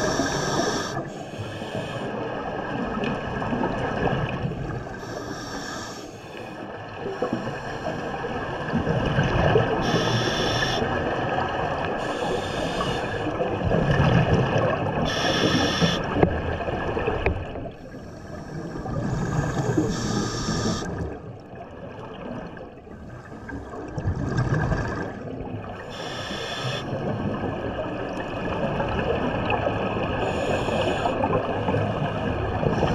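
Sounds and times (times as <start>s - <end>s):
regulator inhale hiss: 0.0s - 2.2s, 5.0s - 6.6s, 9.8s - 10.9s, 12.0s - 13.3s, 15.1s - 16.1s, 17.9s - 21.0s, 25.8s - 27.0s, 30.2s - 31.3s
bubbles gurgling: 23.8s - 30.2s.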